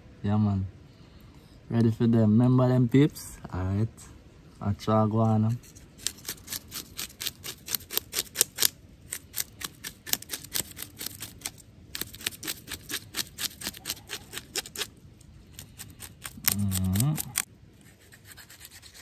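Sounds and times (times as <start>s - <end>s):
knife scraping fish scales: 5.6s - 19.0s.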